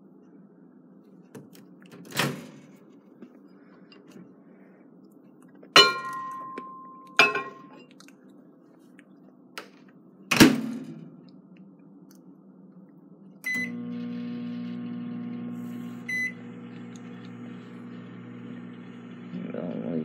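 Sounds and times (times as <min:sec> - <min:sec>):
bowl clinking in microwave: 0:05.8 - 0:07.9
microwave door thumping shut: 0:10.3 - 0:11.1.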